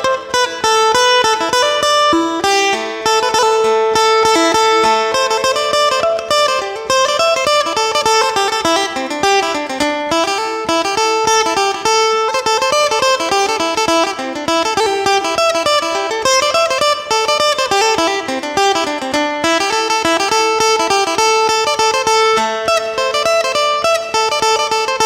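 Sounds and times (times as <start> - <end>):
plucked lute melody over drone: 0.0 - 25.0.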